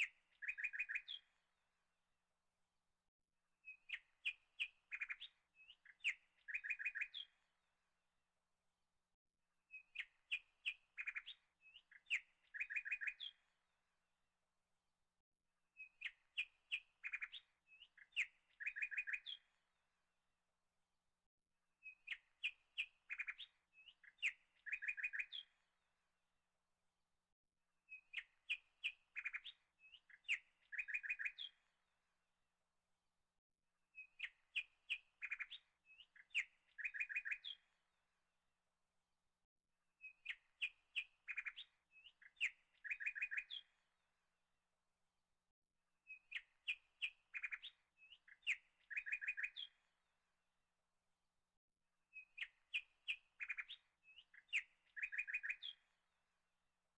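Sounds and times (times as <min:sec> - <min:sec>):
songbird chirps and clicks: 0:00.0 - 0:01.5, 0:03.6 - 0:07.6, 0:09.7 - 0:13.7, 0:15.8 - 0:19.7, 0:21.8 - 0:25.9, 0:27.9 - 0:31.9, 0:33.9 - 0:38.0, 0:40.0 - 0:44.2, 0:46.0 - 0:50.2, 0:52.0 - 0:56.3.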